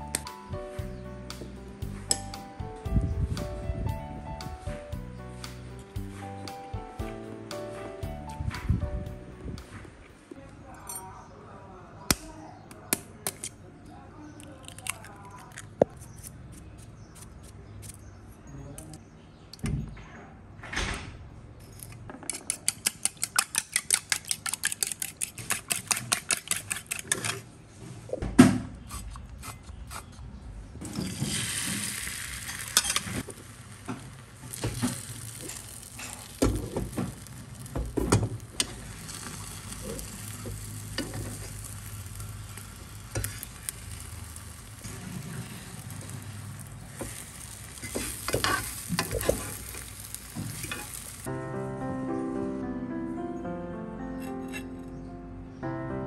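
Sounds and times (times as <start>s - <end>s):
egg sizzling in pan: 30.8s - 51.3s
fork scraping and tapping pan: 47.8s - 49.6s.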